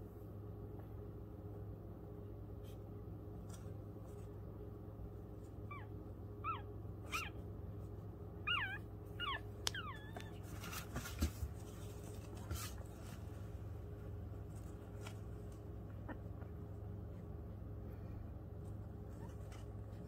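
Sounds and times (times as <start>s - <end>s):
puppies squeaking: 5.7s - 7.4s, 8.4s - 10.6s
soft rustles: 9.8s - 20.0s.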